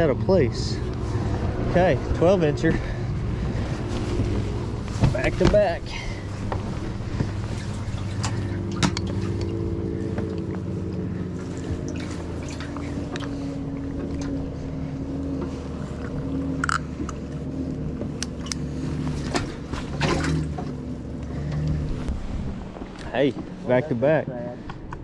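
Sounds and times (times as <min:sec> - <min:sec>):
electric boat motor humming: 0:00.0 - 0:25.0
fish handling clicks and knocks: 0:04.1 - 0:10.7, 0:15.3 - 0:21.8.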